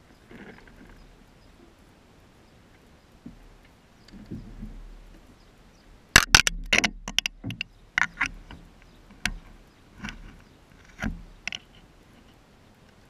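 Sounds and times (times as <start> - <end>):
fish knocking in plastic kayak: 6.2 - 8.6.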